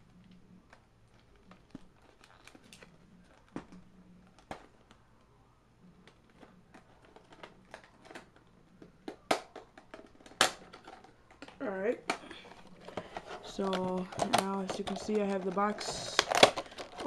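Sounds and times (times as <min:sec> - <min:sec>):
packaging clicks and snaps: 0:00.2 - 0:05.0, 0:06.1 - 0:17.0
box rustling: 0:12.4 - 0:17.0.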